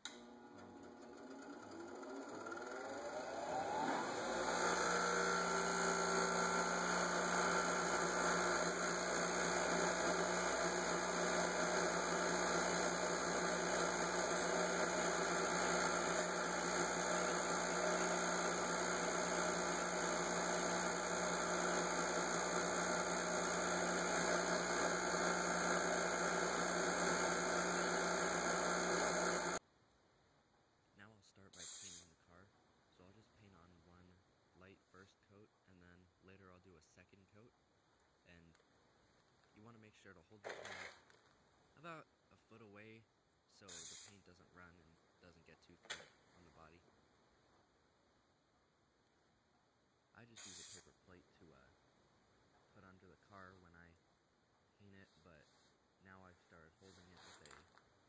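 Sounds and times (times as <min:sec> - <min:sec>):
bench grinder motor whine: 0:00.1 - 0:29.6
part ground on spinning wheel: 0:00.6 - 0:29.6.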